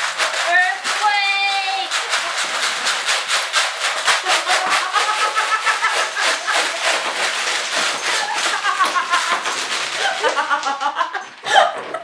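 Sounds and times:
candy rattling in plastic tray: 0:00.0 - 0:12.0
candy scattering onto wooden table: 0:00.0 - 0:12.0
people laughing: 0:01.9 - 0:02.9, 0:04.0 - 0:12.0.

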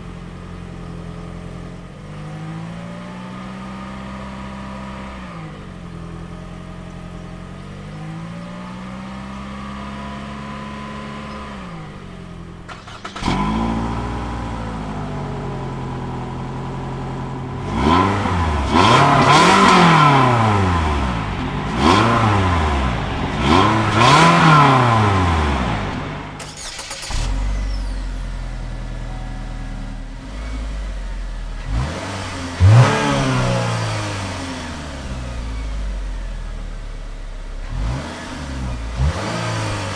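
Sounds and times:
car engine starting and revving: 0:00.0 - 0:39.9
car engine running at exhaust: 0:13.4 - 0:26.4.

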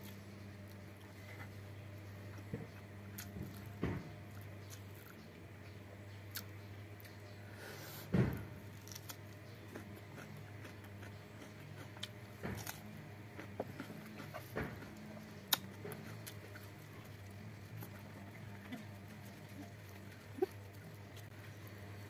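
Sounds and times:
low steady hum: 0:00.0 - 0:22.0
chewing: 0:08.7 - 0:22.0
fingers picking through food: 0:08.7 - 0:22.0.

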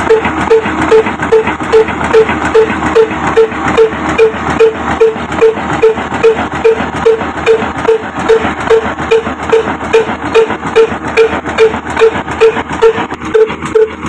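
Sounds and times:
mechanical clatter: 0:00.0 - 0:14.0
stationary engine chugging: 0:00.0 - 0:14.0.

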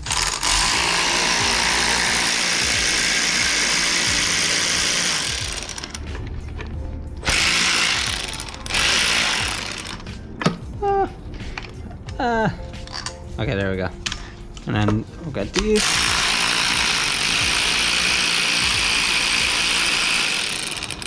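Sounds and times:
handheld power tool running: 0:00.0 - 0:06.0, 0:07.2 - 0:10.1, 0:15.8 - 0:21.0.

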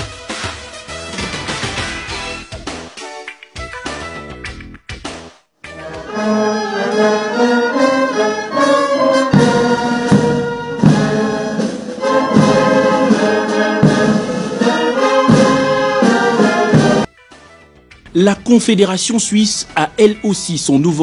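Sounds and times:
brass band playing chords: 0:05.7 - 0:17.1
heavy drum beats: 0:08.5 - 0:17.1.

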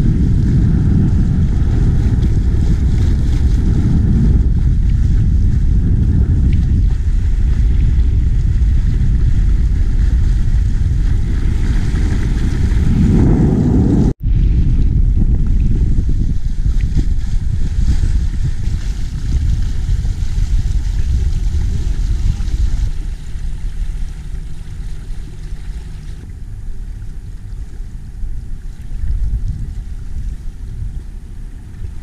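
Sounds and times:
boat engine hum: 0:00.0 - 0:32.0
water along hull: 0:00.0 - 0:32.0
wind on microphone: 0:00.0 - 0:32.0.

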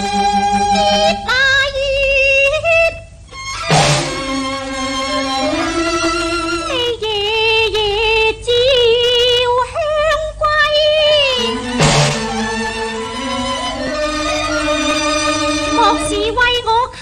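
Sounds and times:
instrumental accompaniment: 0:00.0 - 0:01.3, 0:03.3 - 0:07.0, 0:11.1 - 0:16.6
woman singing opera with vibrato: 0:00.6 - 0:03.0, 0:05.1 - 0:17.0
sharp percussive knock: 0:03.6 - 0:05.6, 0:11.5 - 0:15.0.

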